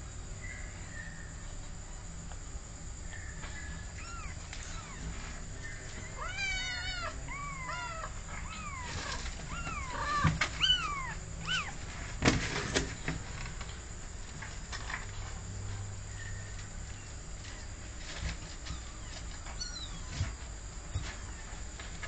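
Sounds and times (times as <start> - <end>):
cat meowing: 4.0 - 5.1, 6.1 - 11.8.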